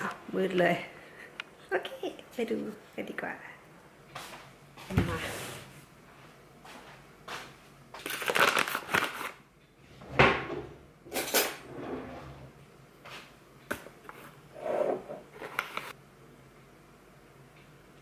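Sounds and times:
foil bag crinkling: 8.0 - 9.4.

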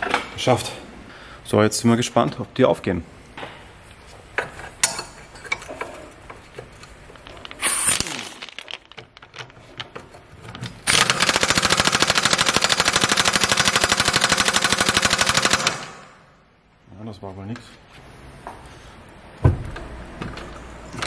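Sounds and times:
short air hiss: 7.6 - 8.2.

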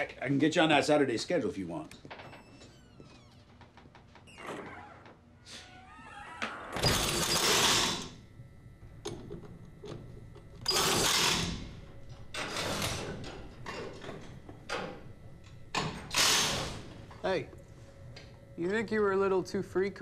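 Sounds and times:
pneumatic impact wrench bursts: 6.8 - 8.1, 10.7 - 11.6, 16.1 - 16.9.

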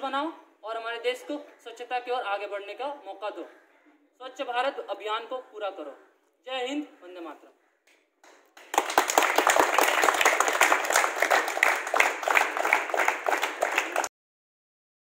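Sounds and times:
group applause: 8.2 - 14.1.

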